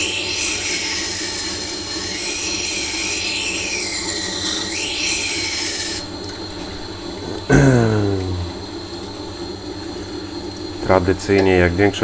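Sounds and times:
knife grinding on stone: 0:00.0 - 0:06.0
low motor hum: 0:05.8 - 0:11.9.

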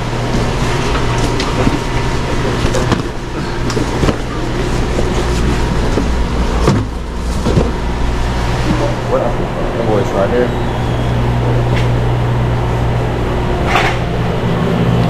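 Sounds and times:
low machinery hum: 0:00.0 - 0:15.0
cardboard scraping: 0:00.4 - 0:09.0
boxes knocking and thudding: 0:01.3 - 0:08.9.

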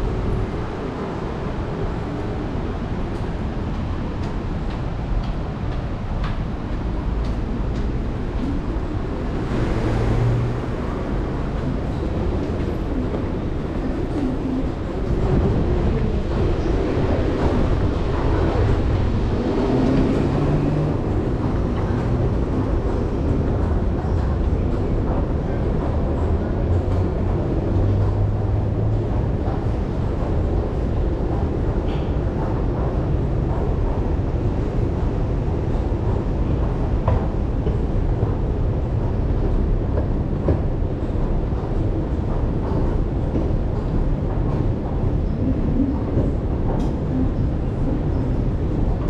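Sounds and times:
escalator rumble and hum: 0:00.0 - 0:49.0
street traffic: 0:00.0 - 0:49.0.

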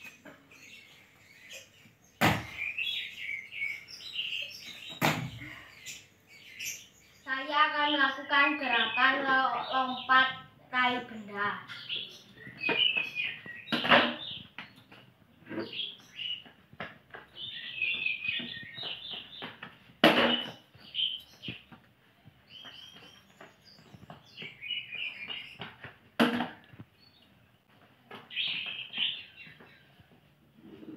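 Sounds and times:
birds chirping: 0:00.0 - 0:30.9
thuds of jumps on tiled floor: 0:02.2 - 0:02.6, 0:04.9 - 0:05.5.

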